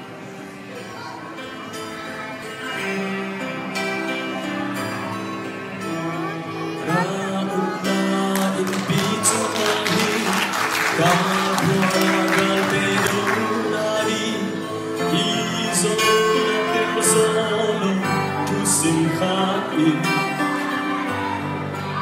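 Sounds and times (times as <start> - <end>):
man singing into a microphone: 5.8 - 22.0.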